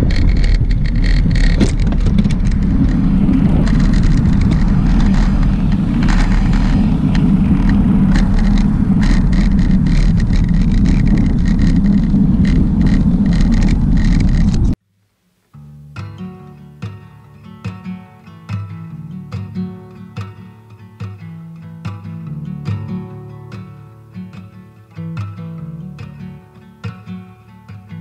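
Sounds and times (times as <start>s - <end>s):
heavy rumble over rough surface: 0.0s - 14.8s
rattling clicks and knocks: 0.0s - 14.8s.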